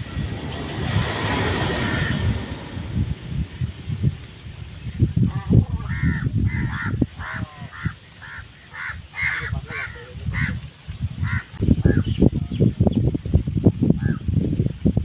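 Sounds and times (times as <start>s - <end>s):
wind rumble on microphone: 0.0s - 15.0s
crow cawing: 1.8s - 2.3s, 5.8s - 10.6s, 11.2s - 12.0s.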